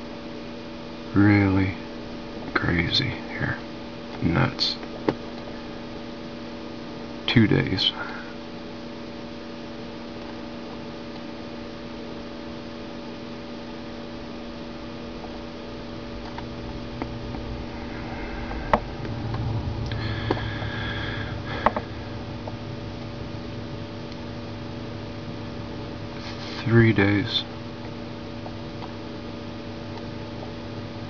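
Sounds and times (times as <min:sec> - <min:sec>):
electrical mains hum: 0:00.0 - 0:31.0
faint hiss: 0:15.0 - 0:24.5, 0:26.1 - 0:27.5.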